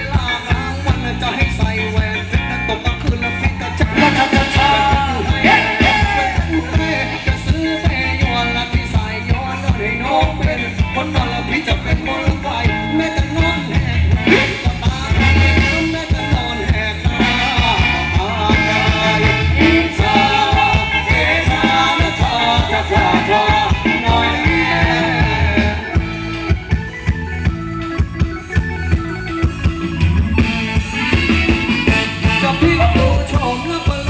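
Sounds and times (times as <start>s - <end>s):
person singing: 0.0s - 26.1s, 32.2s - 34.0s
live dance band: 0.0s - 34.0s
drum beat: 3.8s - 9.1s, 13.2s - 26.2s, 29.9s - 34.0s.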